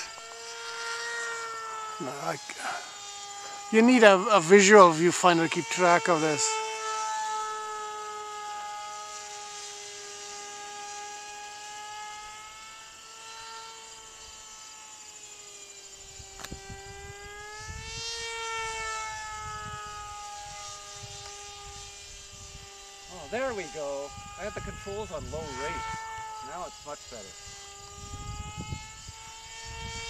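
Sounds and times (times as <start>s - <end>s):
model plane motor whining: 0.0s - 30.0s
wind buffeting microphone: 19.1s - 26.3s, 27.0s - 30.0s.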